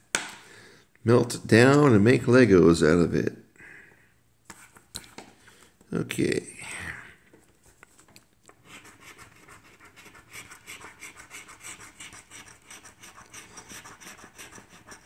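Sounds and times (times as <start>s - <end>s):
coin scratching lottery ticket: 8.7s - 15.0s.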